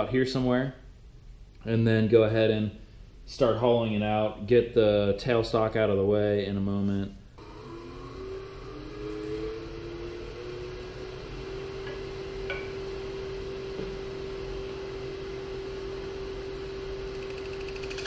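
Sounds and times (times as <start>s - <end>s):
wood lathe motor whining: 7.4s - 12.4s.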